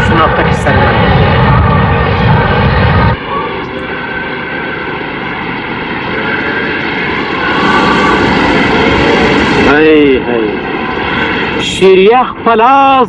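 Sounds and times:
rushing noise: 0:00.0 - 0:12.7
engine drone: 0:00.0 - 0:13.0
heavy low rumble: 0:00.0 - 0:13.0
faint steady tones: 0:02.9 - 0:13.0.

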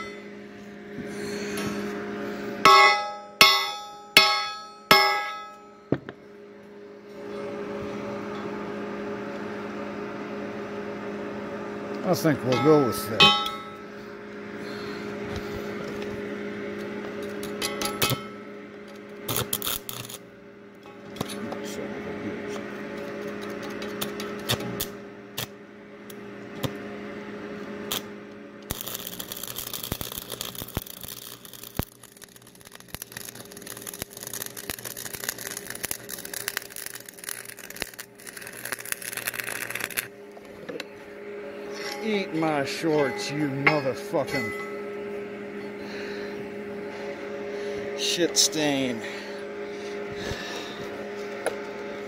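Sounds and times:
steady electrical hum: 0:00.0 - 0:52.0
welding arc crackling: 0:19.3 - 0:20.3, 0:27.9 - 0:40.1.

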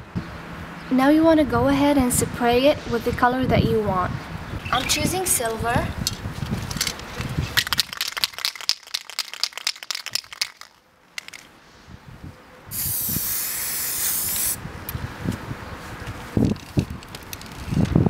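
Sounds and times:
spray can rattling: 0:06.6 - 0:11.5, 0:12.8 - 0:14.6
spray paint hissing: 0:12.7 - 0:14.6.

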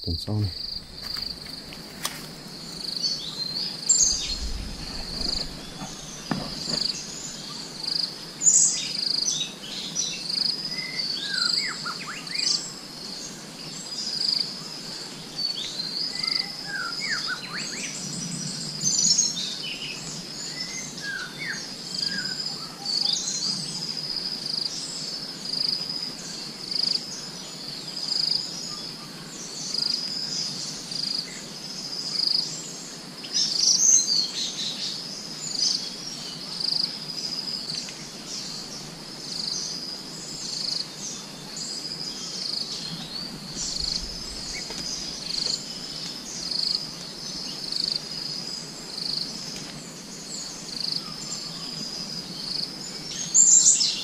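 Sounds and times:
birds chirping: 0:00.0 - 0:14.4, 0:33.3 - 0:54.0
insects trilling: 0:00.0 - 0:54.0.

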